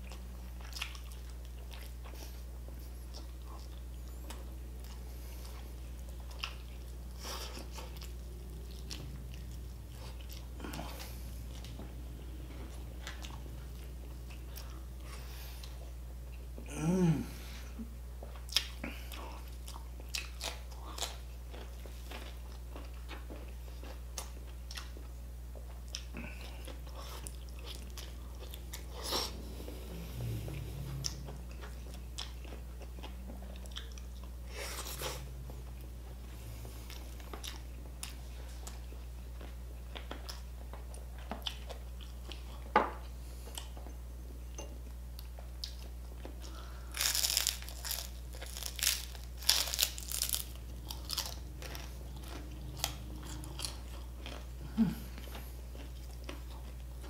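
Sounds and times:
chewing and mouth clicks: 0.0 - 16.5, 18.2 - 36.2, 44.6 - 54.6, 55.2 - 57.0
crunching bites: 46.8 - 54.4.

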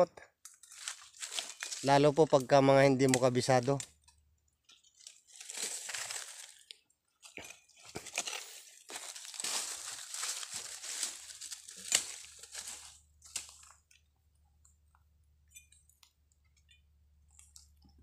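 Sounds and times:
footsteps crunching dry leaves: 0.6 - 2.2, 5.1 - 6.7, 7.8 - 13.7.

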